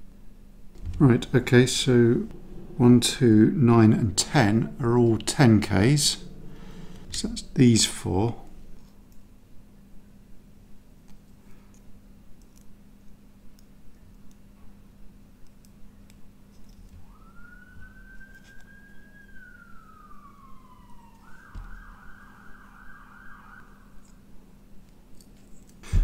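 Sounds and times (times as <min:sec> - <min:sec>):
steady low hum: 0:00.0 - 0:26.0
faint emergency siren: 0:00.8 - 0:09.1, 0:16.9 - 0:24.6.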